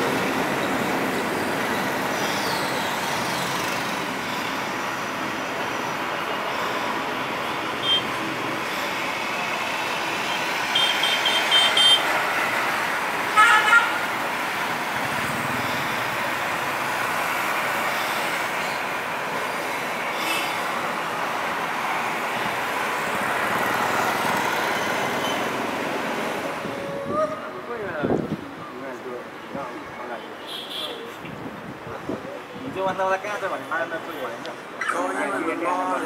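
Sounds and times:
distant jet engine roar: 0:00.0 - 0:27.0
vehicle horns tooting: 0:07.8 - 0:08.2, 0:10.3 - 0:12.1, 0:13.3 - 0:14.1.

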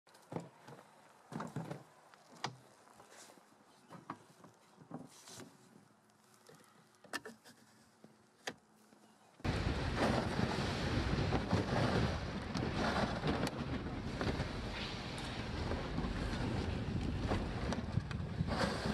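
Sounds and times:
wind on microphone: 0:09.5 - 0:18.9.

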